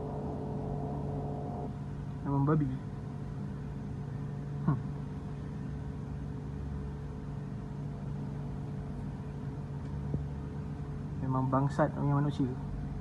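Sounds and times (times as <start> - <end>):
sharp downward sliding sound: 0.0 - 1.8
constant hiss: 0.0 - 13.0
steady low hum: 0.0 - 13.0.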